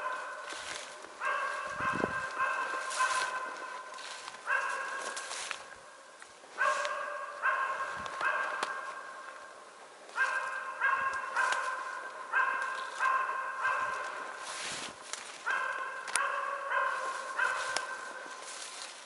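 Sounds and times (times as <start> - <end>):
dog barking: 0.0 - 5.6, 6.6 - 9.3, 10.1 - 14.6, 15.3 - 18.8
footsteps in dry grass: 0.0 - 19.0.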